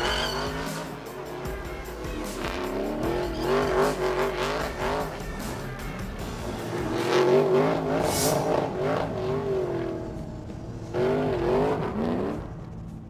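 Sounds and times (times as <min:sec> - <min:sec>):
tyres squealing: 0:00.0 - 0:01.1, 0:02.1 - 0:05.8
race car engine revving: 0:00.0 - 0:13.0.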